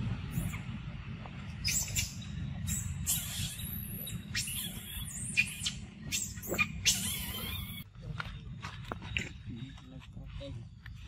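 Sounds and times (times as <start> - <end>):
animal chirps and squeaks: 0.3 - 0.7, 1.5 - 7.8.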